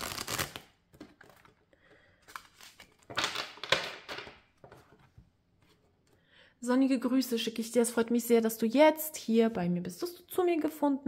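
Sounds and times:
cards being shuffled: 0.0s - 1.6s.

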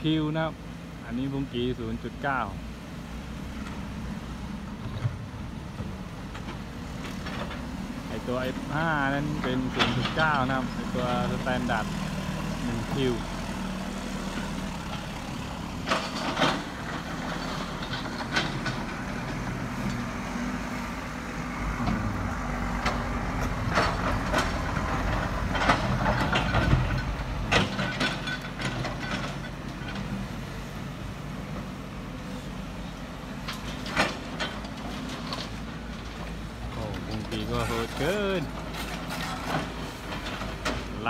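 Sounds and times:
diesel engines running: 0.0s - 41.0s
clanks on steel truck beds: 6.4s - 11.8s, 14.4s - 20.0s, 22.8s - 30.2s, 33.4s - 41.0s.

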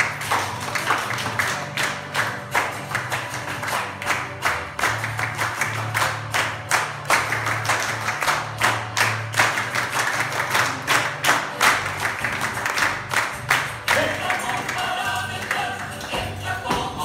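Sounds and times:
hands clapping rhythmically: 0.0s - 17.0s
dance music with bass line: 12.3s - 17.0s.

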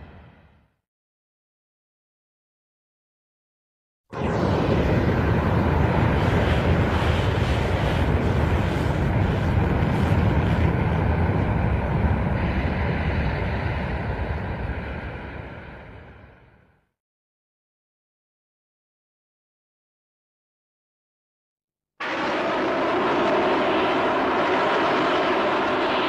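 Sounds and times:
loud rushing rumble: 22.0s - 26.0s.

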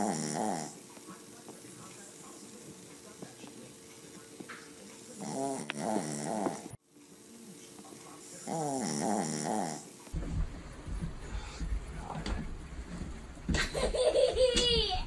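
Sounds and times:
puppy snoring: 0.0s - 0.8s, 5.1s - 6.8s, 8.3s - 9.9s.

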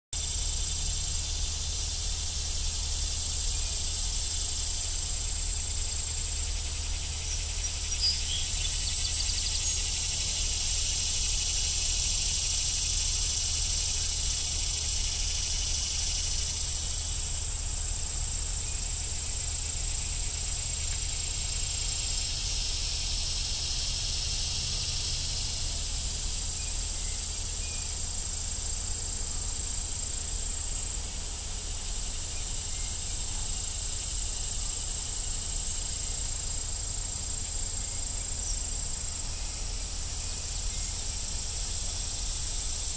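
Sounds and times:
insects trilling: 0.2s - 42.9s
low steady rumble: 0.2s - 42.9s.

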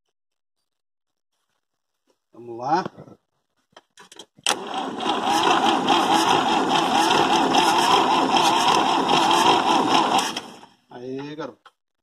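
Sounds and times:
electric starter cranking engine: 4.5s - 10.8s.

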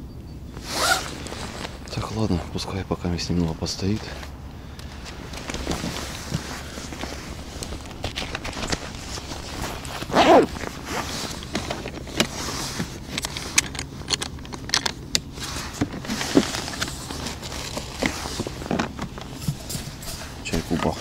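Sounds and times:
clothing rustle: 0.5s - 2.8s, 3.6s - 14.1s, 15.2s - 21.0s
scraping rustle: 0.5s - 21.0s.

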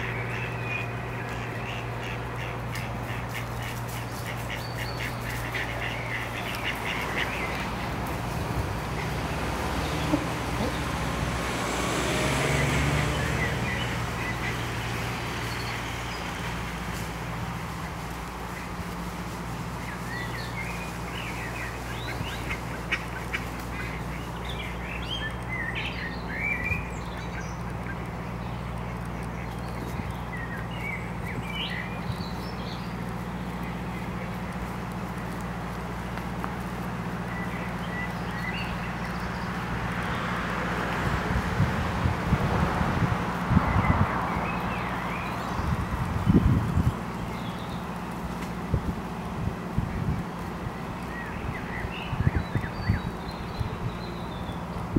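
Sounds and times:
ducks quacking: 0.0s - 32.0s.

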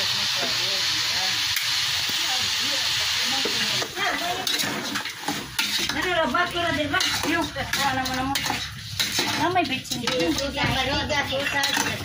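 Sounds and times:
meat sizzling: 0.0s - 12.0s
utensil scraping and clinking pot: 3.4s - 12.0s.

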